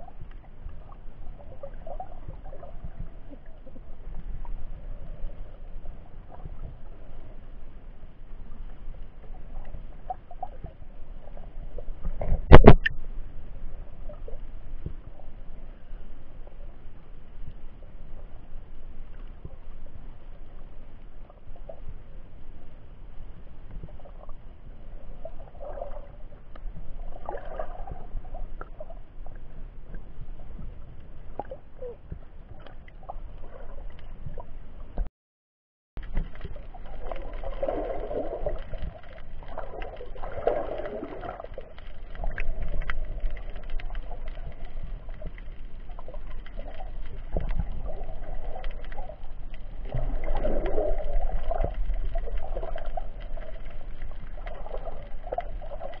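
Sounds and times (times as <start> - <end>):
low underwater rumble: 0.0 - 35.1, 36.0 - 56.0
underwater gurgles: 0.0 - 35.1, 36.0 - 56.0
faint clicks: 26.5 - 26.8, 36.0 - 56.0.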